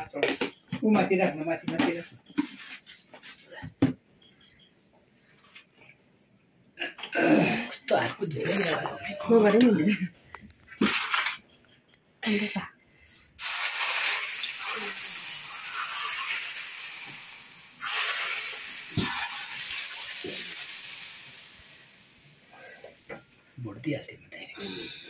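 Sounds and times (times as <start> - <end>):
hot oil sizzling on meat: 13.1 - 23.6.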